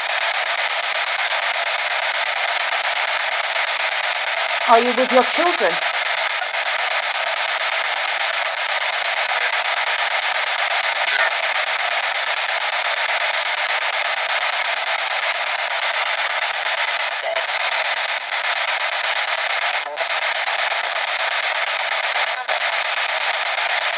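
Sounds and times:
radio static hiss: 0.0 - 23.9
faint voice fragments: 4.7 - 5.8.

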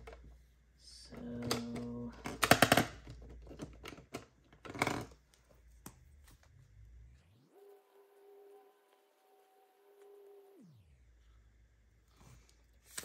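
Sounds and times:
soft music with held tones: 7.2 - 11.0
paper money clicks and rustles: 12.8 - 13.0.

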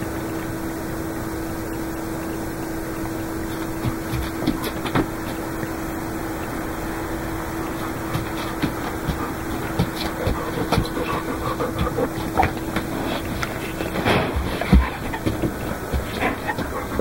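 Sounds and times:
steady hiss with hum: 0.0 - 17.0
pets tapping on wooden floor: 3.5 - 5.8, 7.7 - 17.0.

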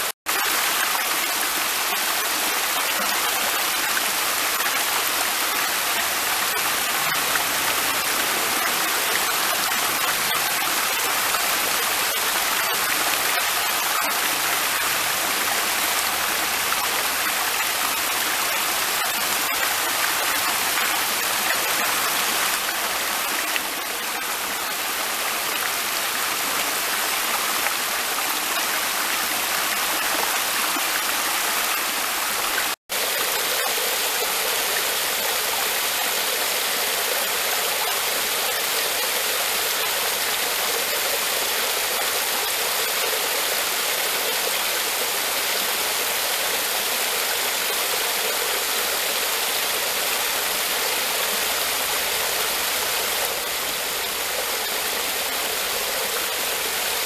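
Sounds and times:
small waterfall splashing: 0.0 - 57.0.

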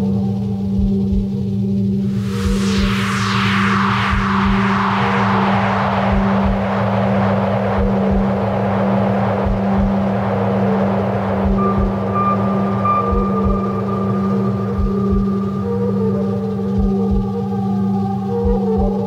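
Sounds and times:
low electronic drone: 0.0 - 19.0
thin high held tone: 1.9 - 18.4
descending whoosh: 2.0 - 16.7
deep irregular pulses: 5.4 - 15.4.

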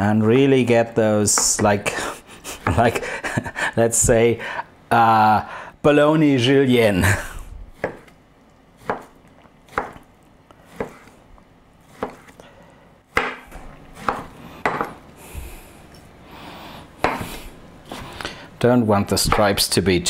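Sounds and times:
knife slicing sausage: 8.8 - 11.2, 11.8 - 12.4, 13.2 - 14.9.

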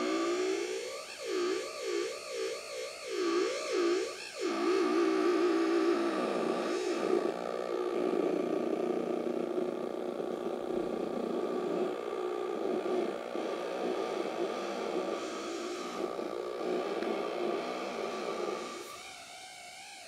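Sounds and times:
theremin buzzing drone: 0.0 - 20.0
steady high electronic tone: 9.0 - 19.2.

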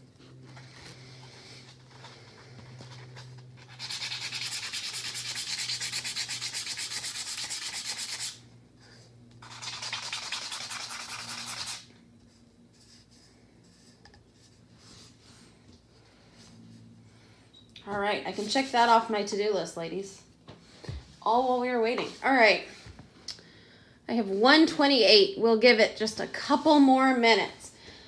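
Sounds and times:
low steady hum: 0.0 - 28.0
hand sanding strokes: 3.6 - 8.4, 9.4 - 11.9.

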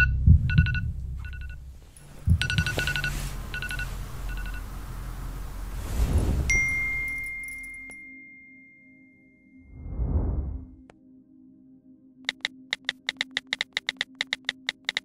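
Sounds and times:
alarm beeps: 0.0 - 1.6, 2.2 - 4.8
low rumble: 0.0 - 7.4, 9.7 - 10.9.

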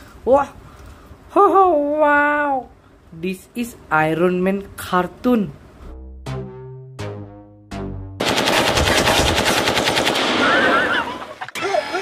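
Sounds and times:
rapid automatic gunfire: 8.2 - 10.9.

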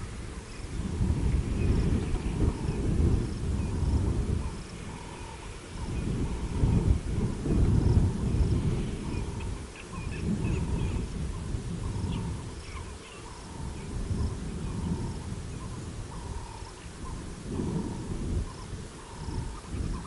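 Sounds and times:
faint chirping calls: 0.0 - 20.0
low uneven rumble: 0.0 - 20.0.

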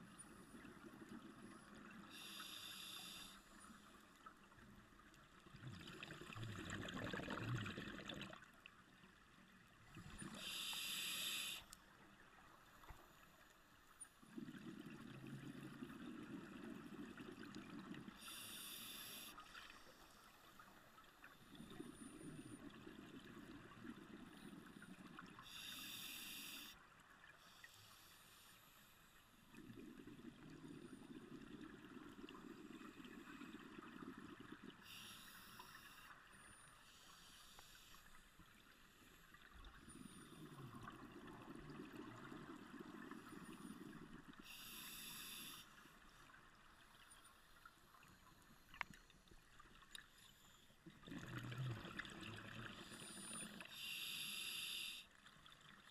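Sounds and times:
regulator inhalation hiss: 2.1 - 3.6, 10.3 - 11.7, 18.2 - 20.1, 25.4 - 26.8, 34.8 - 36.1, 44.4 - 45.8, 52.9 - 55.1
bubbling exhaled air underwater: 5.5 - 8.5, 50.9 - 54.3.

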